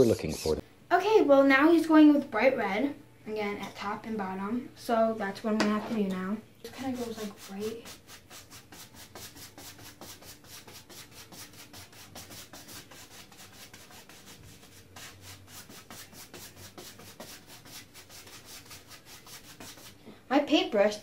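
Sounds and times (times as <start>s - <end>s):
paintbrush scrubbing canvas: 6.7s - 20.0s.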